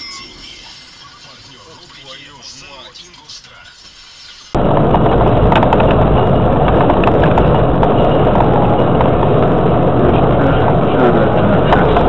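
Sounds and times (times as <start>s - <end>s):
car road and engine rumble: 3.2s - 12.0s.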